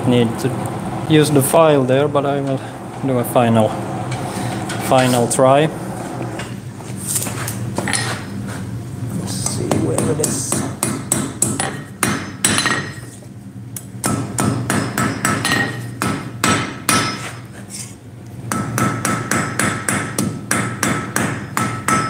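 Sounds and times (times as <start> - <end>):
hammer ringing on anvil: 10.5 - 13.0, 14.1 - 17.3, 20.8 - 22.0.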